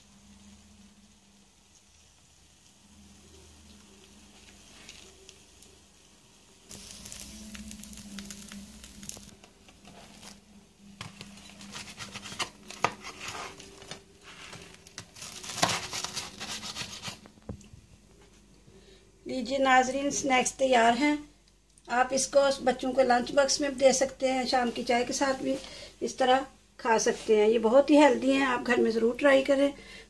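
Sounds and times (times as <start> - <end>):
toasted bread crunching: 6.7 - 17.3.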